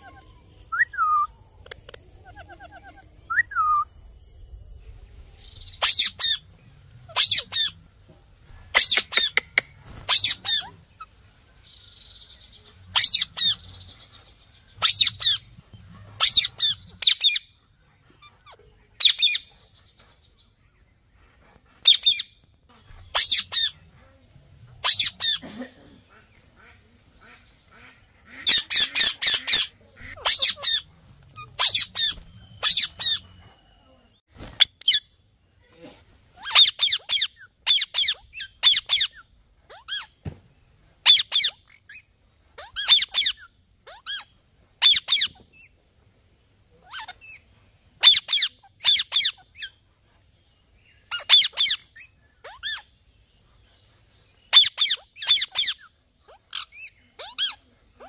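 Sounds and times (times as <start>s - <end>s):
parrot buzzy chatter: 1.6s - 3.5s, 5.8s - 6.5s, 7.1s - 7.8s, 8.4s - 11.1s, 14.8s - 17.5s, 21.8s - 33.4s, 36.4s - 40.1s, 41.0s - 45.7s, 46.8s - 49.8s, 54.5s - 58.0s
parrot squawking: 2.2s - 3.8s, 5.8s - 6.4s, 7.1s - 7.8s, 8.7s - 10.8s, 12.9s - 13.6s, 14.8s - 15.4s, 16.2s - 17.5s, 23.1s - 23.8s, 24.8s - 25.4s, 28.3s - 33.2s, 36.4s - 40.1s, 41.0s - 42.0s, 42.6s - 45.7s, 46.8s - 47.4s, 48.0s - 49.8s, 51.1s - 52.9s, 54.5s - 58.0s.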